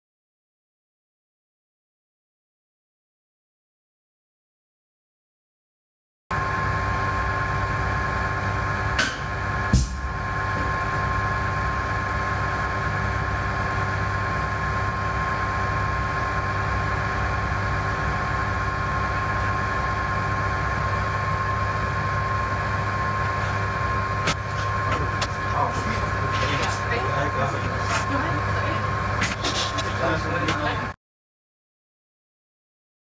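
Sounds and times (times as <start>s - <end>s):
machine hum with high whine: 6.3s - 31.0s.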